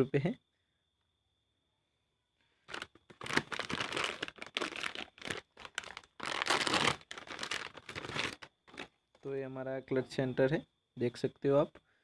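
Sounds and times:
plastic packet crinkling: 0:02.7 - 0:08.9.

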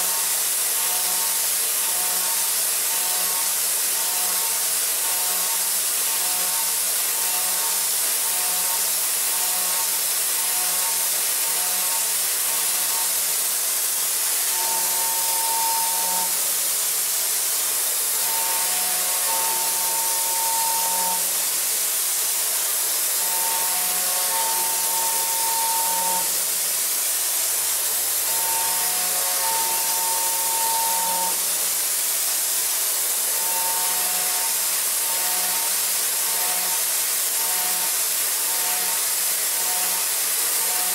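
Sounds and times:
metal cutting hiss: 0:00.0 - 0:40.9
pitched machine whine: 0:27.3 - 0:31.5.

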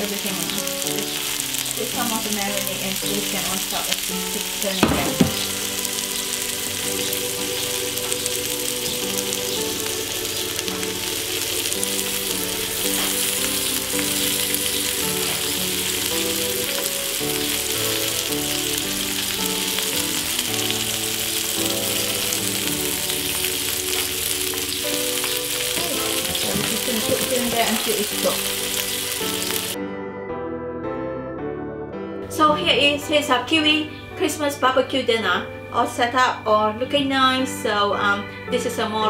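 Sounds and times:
prawns sizzling on hotplate: 0:00.0 - 0:29.8
instrumental background music: 0:00.0 - 0:39.0.

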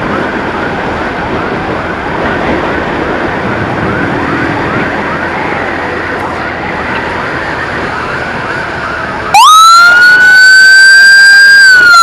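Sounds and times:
emergency siren rising sweeps: 0:00.0 - 0:12.0
wind noise: 0:00.0 - 0:12.0.

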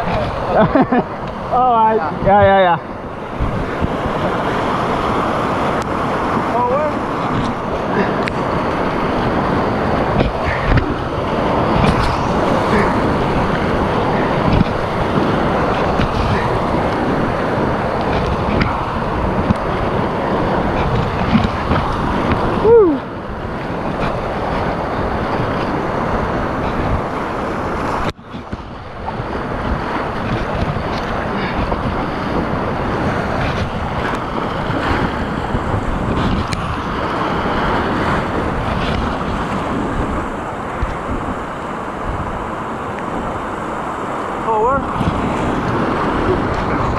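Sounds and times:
rushing whitewater: 0:00.0 - 0:46.9
wind buffeting microphone: 0:00.0 - 0:46.9
falling whoop: 0:22.6 - 0:23.1.

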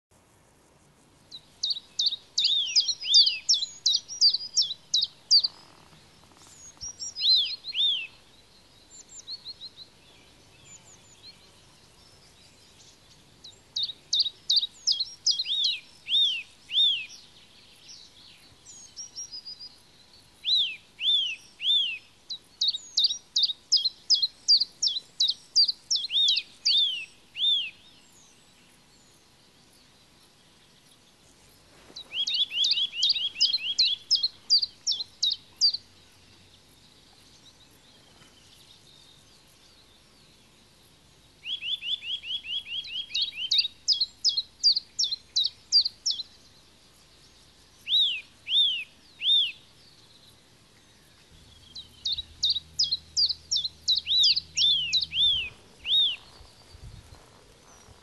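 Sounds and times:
songbirds chirping: 0:00.1 - 0:58.0.

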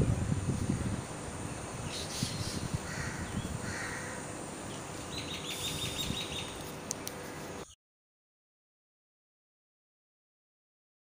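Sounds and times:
wind on microphone: 0:00.0 - 0:04.1, 0:05.7 - 0:06.4
birds calling: 0:00.0 - 0:07.8.

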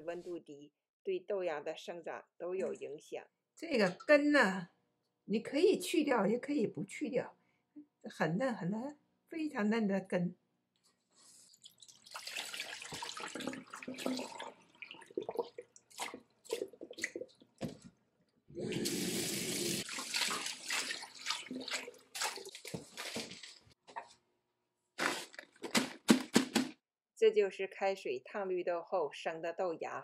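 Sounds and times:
tap water running into metal bowl: 0:11.8 - 0:15.2, 0:18.7 - 0:23.4
hands swishing sprouts in water: 0:19.8 - 0:23.8.

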